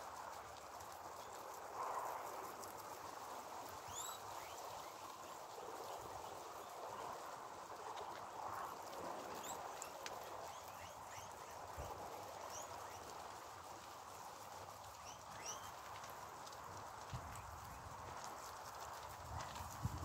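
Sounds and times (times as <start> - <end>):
guinea pigs chewing and rustling: 0.0 - 20.0
guinea pig chirps: 3.9 - 4.6, 15.0 - 15.7.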